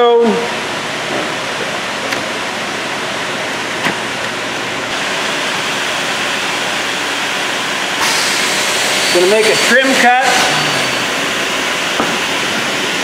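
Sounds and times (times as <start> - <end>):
circular saw whirring: 4.9 - 13.0.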